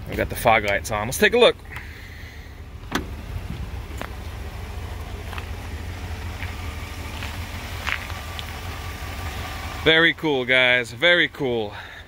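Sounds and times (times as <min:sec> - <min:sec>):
car engine idling: 0:00.0 - 0:12.0
car door shutting: 0:02.8 - 0:04.1.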